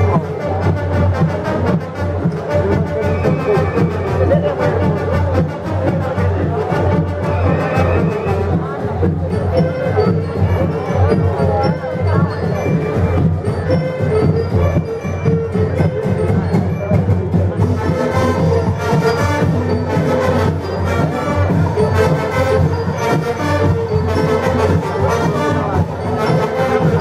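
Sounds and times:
rhythmic drumming: 0.0s - 27.0s
brass playing tune: 17.6s - 27.0s.

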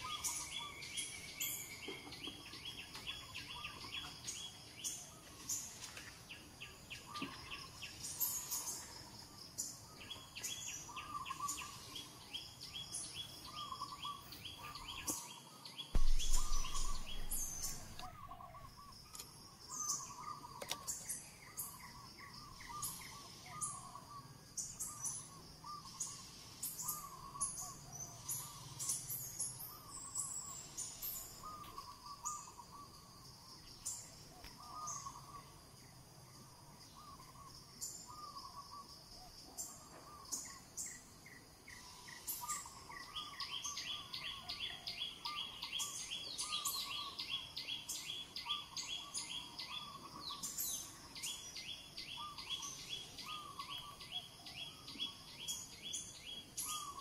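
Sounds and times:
birds chirping and trilling: 0.0s - 57.0s
loud low thump and rumble: 16.0s - 18.1s.

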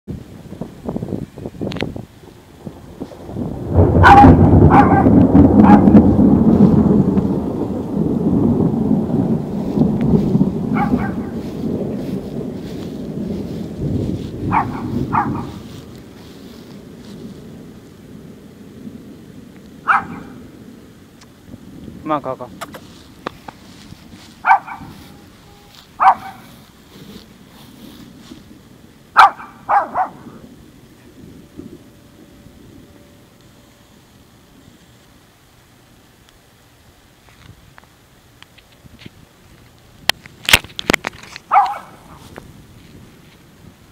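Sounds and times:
thunder rumbling: 0.1s - 35.9s, 39.3s - 43.9s
small dog barking: 4.0s - 5.8s, 10.7s - 11.4s, 14.5s - 15.7s, 19.8s - 20.4s, 24.4s - 25.3s, 26.0s - 26.6s, 29.2s - 30.4s, 41.5s - 42.2s.

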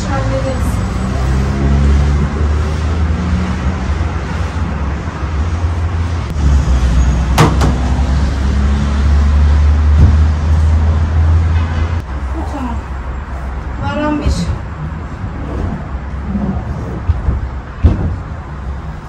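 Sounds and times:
road traffic rumble: 0.0s - 19.0s
sharp knock: 7.4s - 7.9s.

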